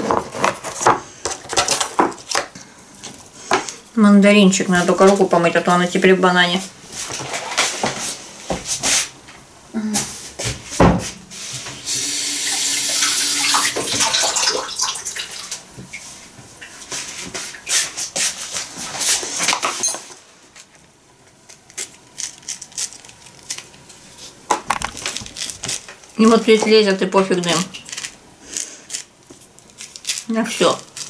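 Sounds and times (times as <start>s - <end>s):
water tap running: 11.8s - 15.7s.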